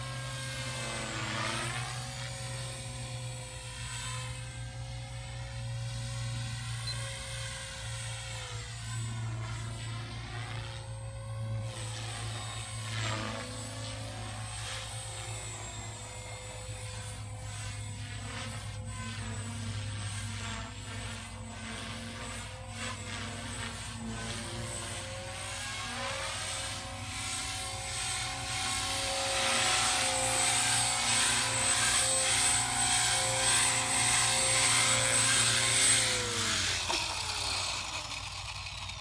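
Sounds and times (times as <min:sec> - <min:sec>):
helicopter motor and rotor whining: 0:00.0 - 0:39.0.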